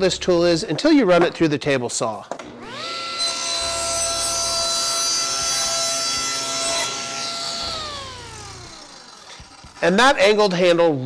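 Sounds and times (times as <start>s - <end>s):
table saw running: 2.5s - 10.6s
saw blade spinning down: 2.6s - 10.7s.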